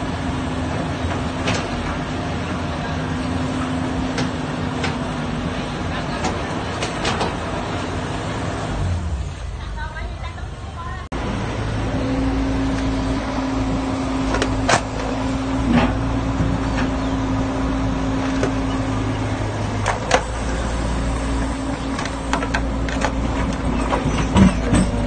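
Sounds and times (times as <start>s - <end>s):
excavator diesel engine running: 0.0s - 25.0s
metal clanks of excavator bucket: 22.4s - 25.0s.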